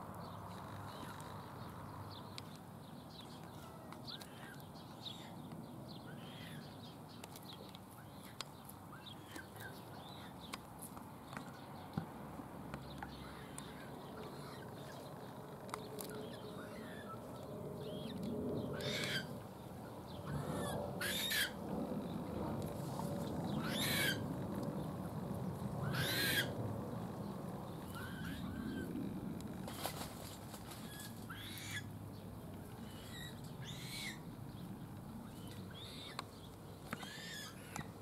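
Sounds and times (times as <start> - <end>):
small birds chirping: 0.2 - 12.1, 12.7 - 22.3, 23.2 - 38.0
loud harsh bird calls: 18.7 - 19.4, 20.2 - 21.6, 23.5 - 24.3, 25.8 - 26.6, 27.8 - 28.9, 30.8 - 31.9, 32.8 - 34.3, 37.0 - 38.0.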